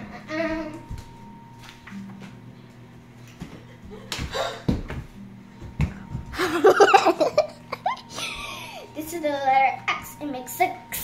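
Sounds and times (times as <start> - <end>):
child laughing and squealing: 6.6 - 8.8.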